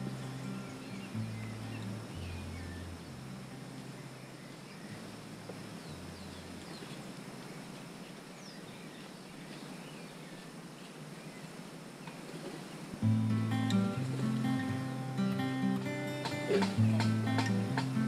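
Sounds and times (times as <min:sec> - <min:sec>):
low bass music notes: 0:00.0 - 0:04.4, 0:13.0 - 0:18.0
faint bird chirps: 0:00.0 - 0:17.8
background hiss: 0:00.0 - 0:18.0.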